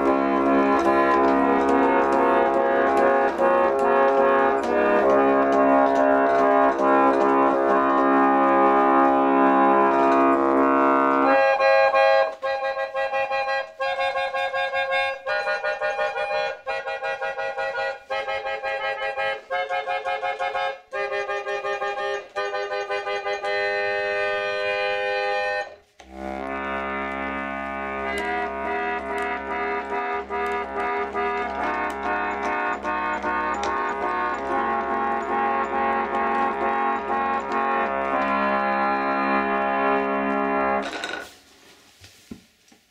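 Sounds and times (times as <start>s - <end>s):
harmonium chords: 0.0s - 40.8s.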